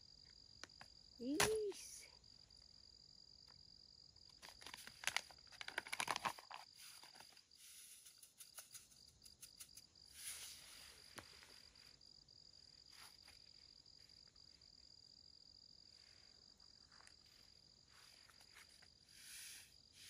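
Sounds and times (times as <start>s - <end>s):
high-pitched insect trill: 6.4s - 20.0s.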